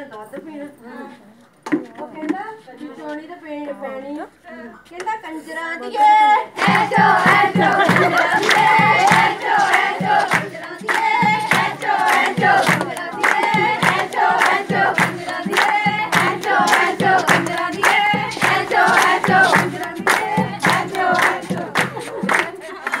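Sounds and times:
women singing folk song: 1.8 - 23.0
hand-clapping steady beat: 6.6 - 23.0.

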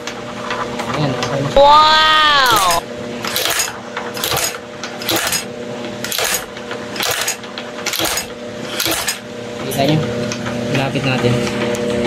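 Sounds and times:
motor hum: 0.4 - 3.5.

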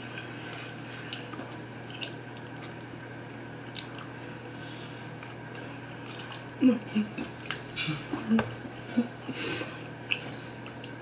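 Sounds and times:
people chewing bread: 0.0 - 3.0, 3.6 - 11.0
steady low hum: 0.0 - 11.0.

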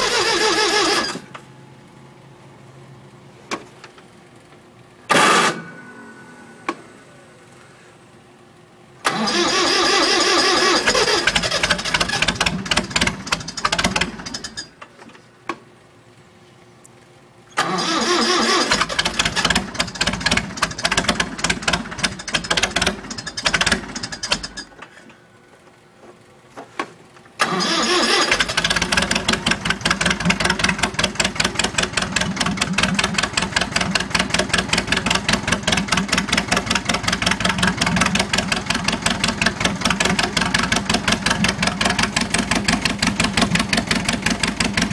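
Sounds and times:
starter motor cranking: 0.0 - 1.3, 9.0 - 14.7, 17.6 - 24.8, 27.4 - 44.9
diesel engine running: 9.0 - 14.7, 17.6 - 25.6, 27.4 - 44.9.

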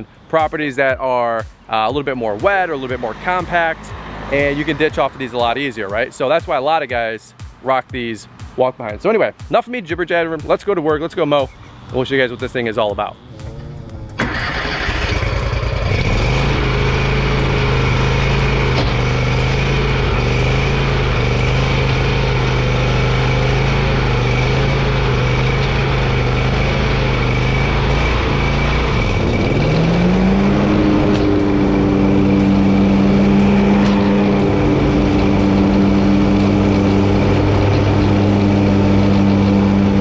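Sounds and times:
lawn mower engine running: 2.5 - 5.5, 13.2 - 40.0.

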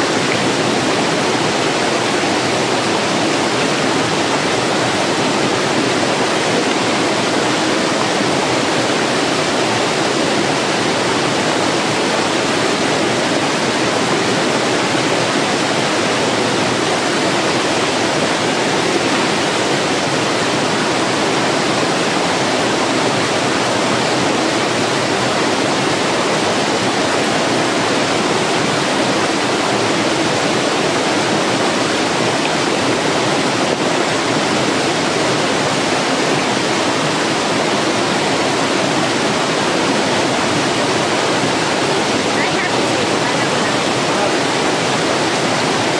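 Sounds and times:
stream cascading over rocks: 0.0 - 45.9.

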